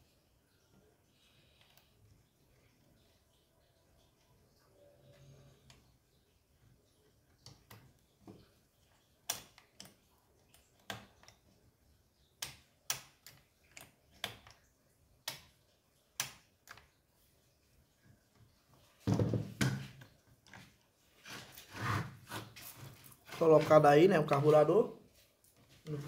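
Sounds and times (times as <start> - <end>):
small parts clicking and tapping: 5.0 - 17.1.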